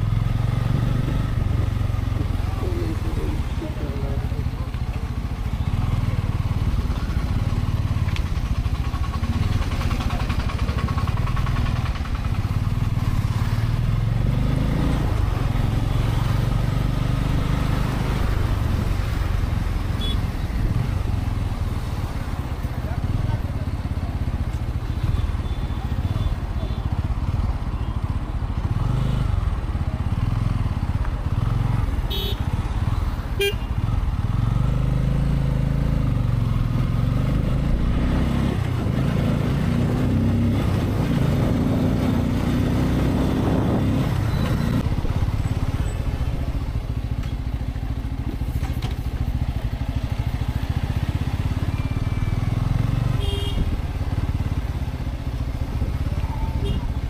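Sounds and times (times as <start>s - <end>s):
motorcycle engine accelerating: 0.0s - 24.8s, 28.5s - 57.0s
short horn beeps: 20.0s - 20.3s, 53.1s - 53.7s.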